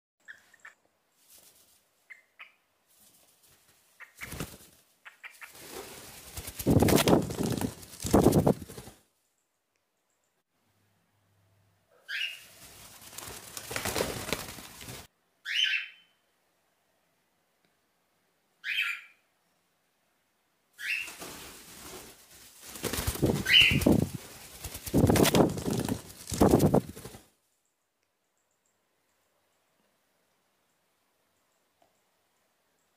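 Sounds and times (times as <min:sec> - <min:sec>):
bird wings flapping: 0:01.2 - 0:01.8, 0:02.9 - 0:09.0, 0:12.3 - 0:15.1, 0:20.9 - 0:27.3
cockatiel chirps: 0:02.1 - 0:02.6, 0:12.0 - 0:12.5, 0:15.4 - 0:16.2, 0:18.6 - 0:19.2, 0:20.8 - 0:21.2.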